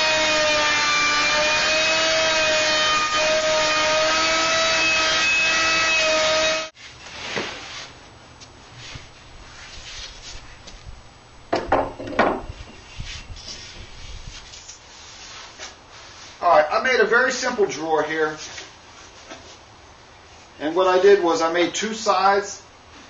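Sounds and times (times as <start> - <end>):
electric router cutting wood: 0.0 - 6.7
wooden knocks and scrapes: 11.5 - 13.9.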